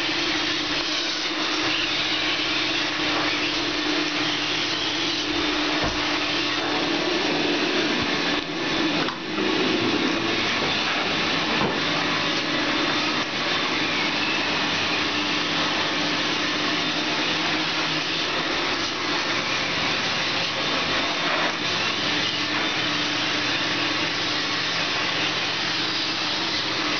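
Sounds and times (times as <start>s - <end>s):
vacuum suction through hose: 2.6s - 16.6s.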